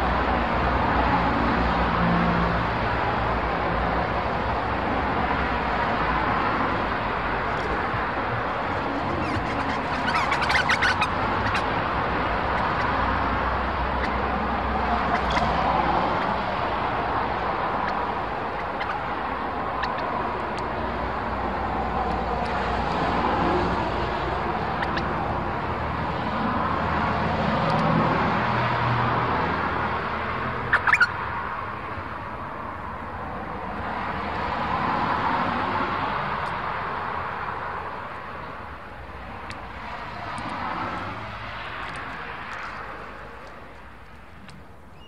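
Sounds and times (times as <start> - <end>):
passing road traffic: 0.0 - 45.0
bird chirps: 8.4 - 11.7, 18.6 - 19.0, 30.7 - 31.1.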